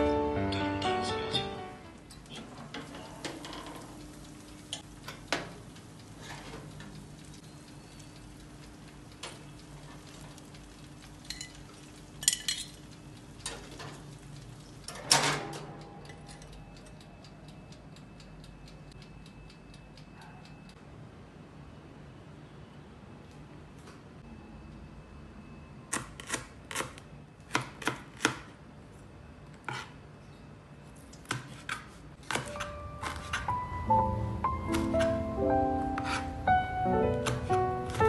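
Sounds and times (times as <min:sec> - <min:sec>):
oven humming: 0:00.0 - 0:20.8, 0:32.1 - 0:38.0
metal tongs and tray clattering: 0:12.2 - 0:12.8.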